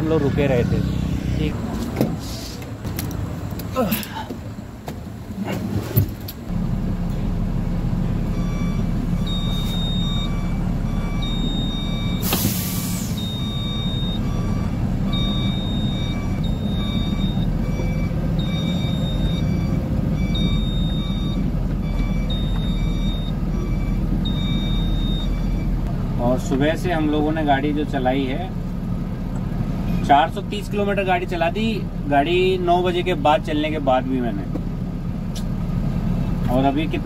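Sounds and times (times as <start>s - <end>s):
air brake hiss: 2.2s - 2.6s, 12.2s - 13.3s
diesel truck engine idling: 6.4s - 37.0s
reversing alarm beeping: 8.3s - 25.8s.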